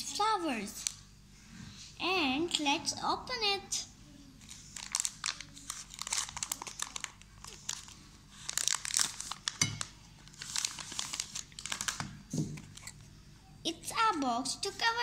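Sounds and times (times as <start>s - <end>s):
plastic wrapper crinkling: 4.4s - 13.0s.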